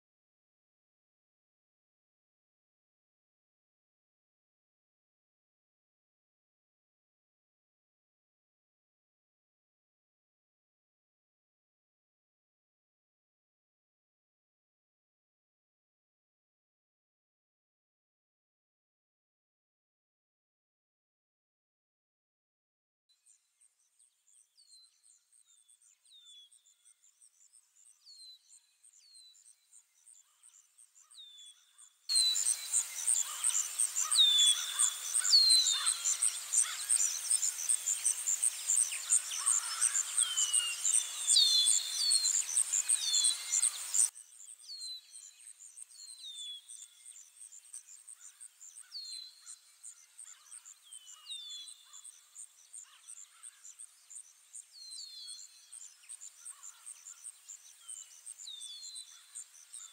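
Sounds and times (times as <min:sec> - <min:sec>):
bird chirps: 0:23.2 - 0:59.9.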